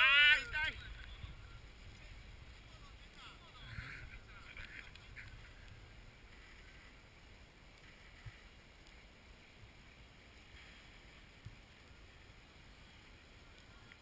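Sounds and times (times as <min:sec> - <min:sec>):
faint outdoor hiss: 0:00.0 - 0:14.0.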